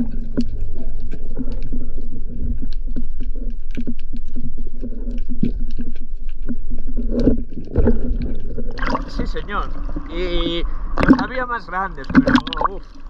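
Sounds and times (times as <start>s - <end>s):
small clicks and crackles: 0.0s - 10.1s
muffled underwater rumble and hum: 0.0s - 13.0s
loud underwater burst: 7.8s - 13.0s.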